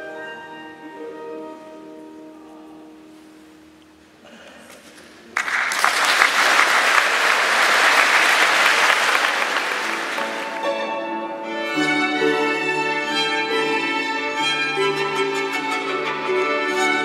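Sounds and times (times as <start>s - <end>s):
audience applauding: 5.3s - 10.9s.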